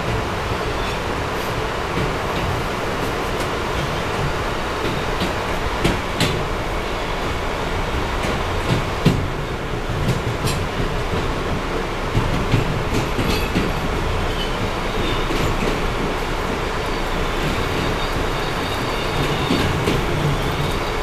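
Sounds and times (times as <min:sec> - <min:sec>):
train wheels rumbling on rails: 0:00.0 - 0:21.0
faint wheel squeals: 0:16.7 - 0:21.0.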